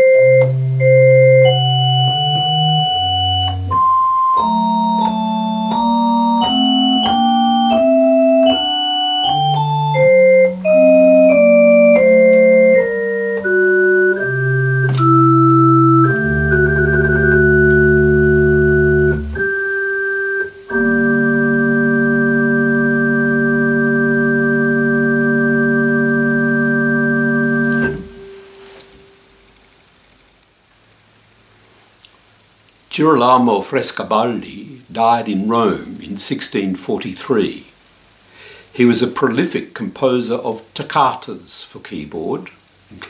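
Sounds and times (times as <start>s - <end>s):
deep organ pedal note: 0.0s - 29.2s
electronic organ playing: 0.0s - 29.3s, 34.6s - 36.1s.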